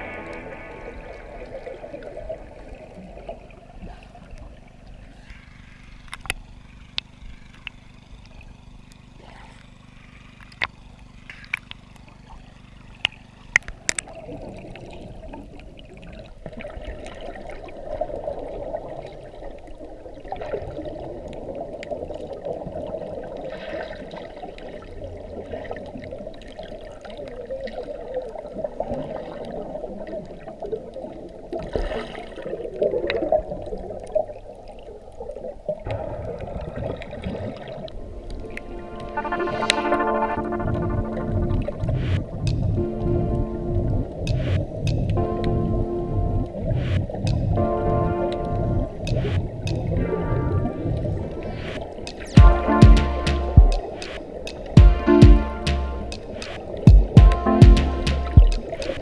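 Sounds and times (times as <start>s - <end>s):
muffled underwater noise: 0.0s - 59.0s
sharp underwater clicks: 3.8s - 14.5s, 41.9s - 42.8s, 44.2s - 45.6s, 46.7s - 47.6s, 48.3s - 50.0s, 51.6s - 59.0s.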